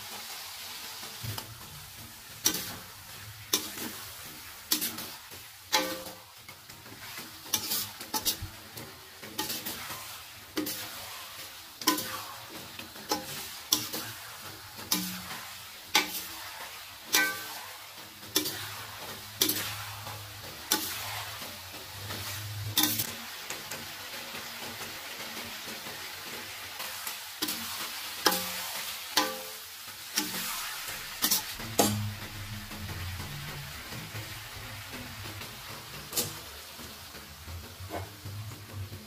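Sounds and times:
food sizzling: 0:00.0 - 0:39.0
metal spatula scraping a wok: 0:01.0 - 0:23.1, 0:26.8 - 0:37.1.

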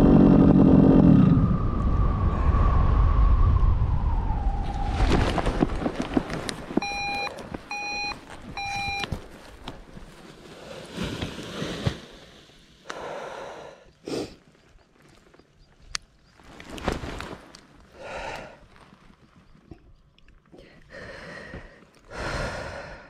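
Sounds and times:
rustle and clatter of lines: 0:04.9 - 0:12.2, 0:14.4 - 0:18.0, 0:18.6 - 0:20.9
short electronic beeps: 0:06.8 - 0:09.1.

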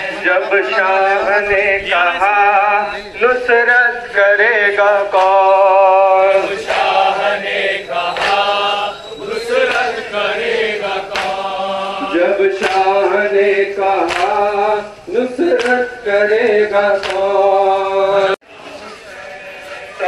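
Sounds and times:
man chanting over loudspeakers: 0:00.0 - 0:20.0
sharp slaps: 0:05.1 - 0:05.6, 0:08.1 - 0:08.6, 0:09.7 - 0:10.0, 0:11.1 - 0:11.5, 0:12.6 - 0:13.0, 0:14.0 - 0:14.4, 0:15.6 - 0:15.9, 0:17.0 - 0:17.4.

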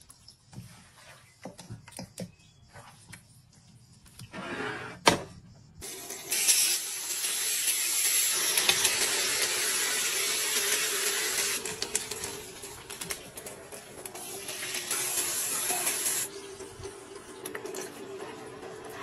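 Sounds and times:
chicken wings sizzling in oil: 0:05.8 - 0:16.4.

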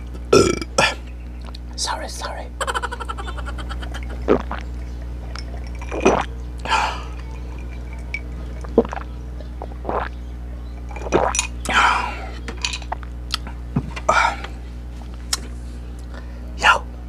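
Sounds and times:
man swallowing a drink: 0:00.3 - 0:01.7, 0:02.6 - 0:09.1, 0:09.7 - 0:10.1, 0:10.9 - 0:12.1.

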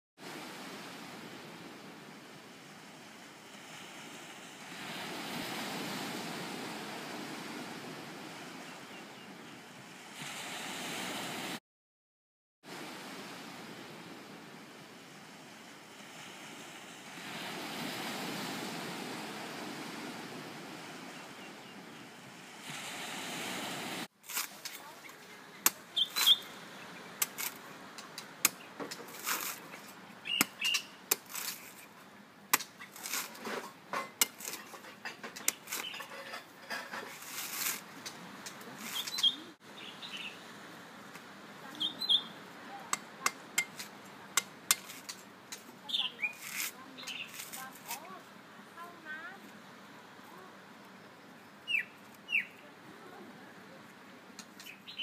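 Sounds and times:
birds chirping: 0:21.0 - 0:22.4, 0:24.9 - 0:27.2, 0:30.2 - 0:31.0, 0:35.0 - 0:36.4, 0:38.5 - 0:40.5, 0:41.7 - 0:42.4, 0:45.8 - 0:47.7, 0:50.7 - 0:52.7, 0:54.4 - 0:55.0.

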